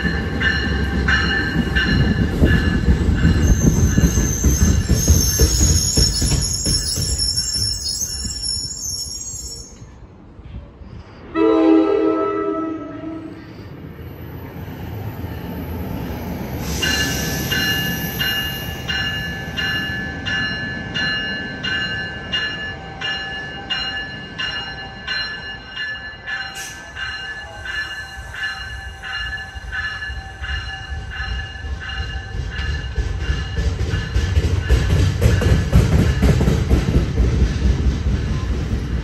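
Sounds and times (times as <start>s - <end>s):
train warning bell ringing: 0.0s - 10.0s, 16.8s - 36.4s
rumble of approaching train: 0.0s - 39.0s.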